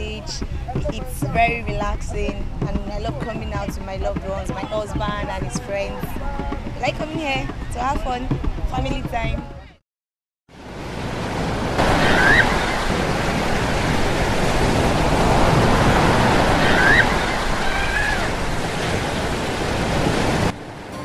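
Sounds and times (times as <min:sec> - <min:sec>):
ocean surf breaking: 0:10.6 - 0:21.0.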